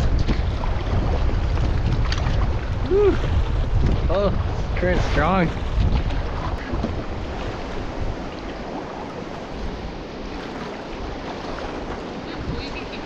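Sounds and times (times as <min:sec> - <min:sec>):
river current rushing: 0:00.0 - 0:13.0
wind buffeting microphone: 0:00.0 - 0:13.0.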